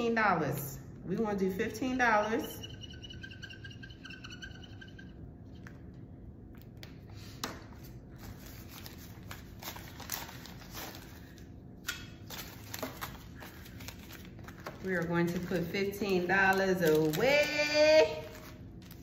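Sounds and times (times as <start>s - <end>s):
banknotes rustling: 8.0s - 11.6s, 12.2s - 19.0s.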